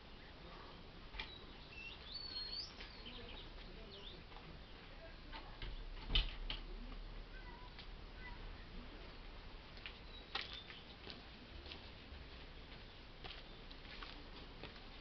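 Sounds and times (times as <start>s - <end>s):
small birds chirping: 0.0s - 6.0s, 7.4s - 11.4s, 12.4s - 14.2s.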